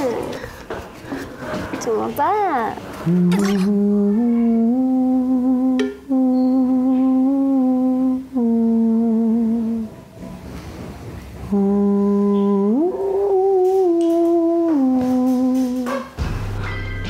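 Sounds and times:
person humming a melody: 3.0 - 9.9, 11.5 - 15.9.

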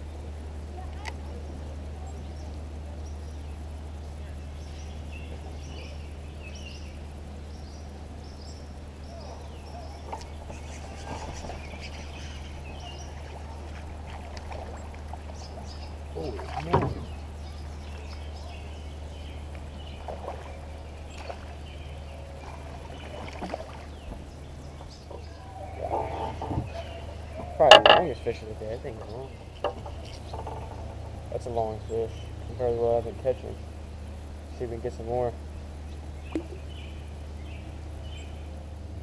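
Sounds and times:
low steady hum: 0.0 - 39.0
faint bird chirps: 2.0 - 13.9, 14.6 - 32.8.

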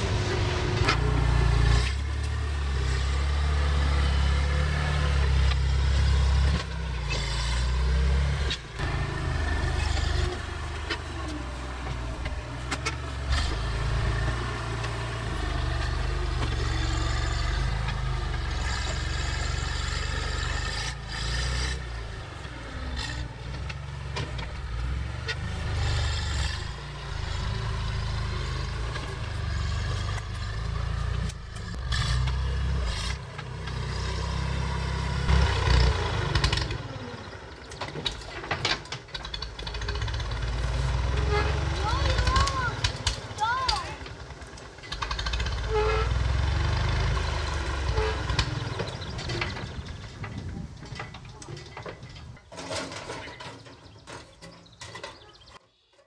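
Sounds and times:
tractor engine running: 0.0 - 56.0
metal knocks and clanks: 47.2 - 55.6.

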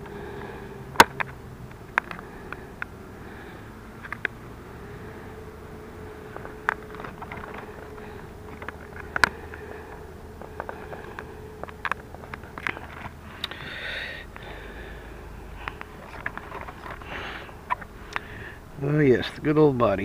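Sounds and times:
short breath: 13.2 - 15.7, 17.0 - 18.6.

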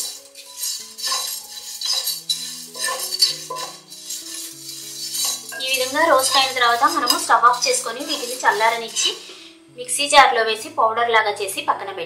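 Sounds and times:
spatula scraping spices in pan: 0.0 - 9.6.

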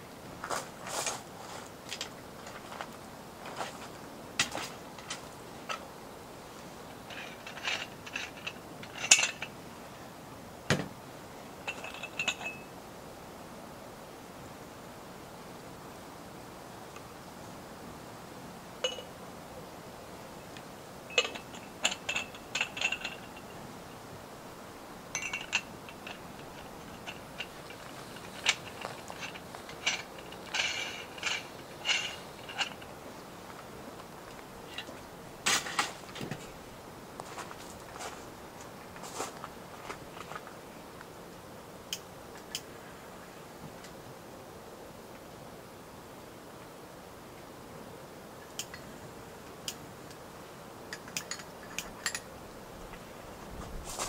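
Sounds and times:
dishes and utensils clinking: 7.1 - 9.5, 11.7 - 12.7, 18.8 - 19.1, 21.1 - 23.6, 25.1 - 32.9, 50.9 - 52.3
short metallic ring: 7.2 - 9.5, 11.7 - 12.7, 18.8 - 19.1, 21.1 - 23.6, 25.1 - 32.8.

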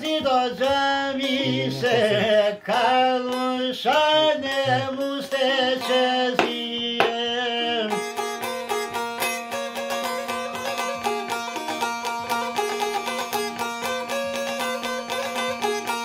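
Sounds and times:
man singing: 0.0 - 8.2
plucked lute: 0.0 - 16.0.

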